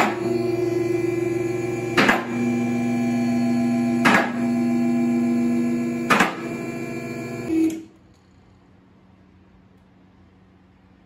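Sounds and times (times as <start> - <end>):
hydraulic pump motor humming: 0.0 - 7.9.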